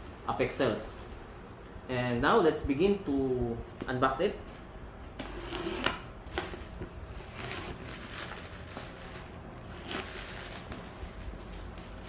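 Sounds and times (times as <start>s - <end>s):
plastic tearing: 5.2s - 12.0s
plastic bag crinkling: 6.2s - 12.0s.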